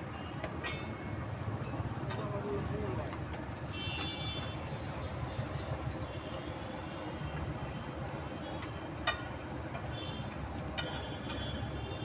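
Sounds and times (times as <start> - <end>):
street traffic noise: 0.0 - 12.0
metal spatula striking griddle: 9.1 - 9.4.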